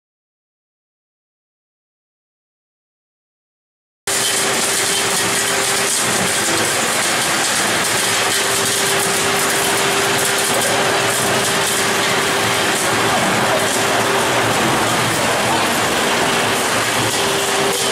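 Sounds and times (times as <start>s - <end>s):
recycling machine running: 4.1s - 17.9s
steady mid-pitched machine tone: 4.1s - 17.9s.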